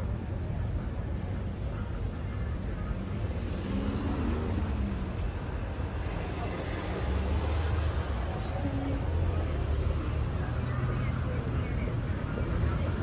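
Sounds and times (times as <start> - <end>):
traffic rumble of passing cars: 0.0 - 13.0.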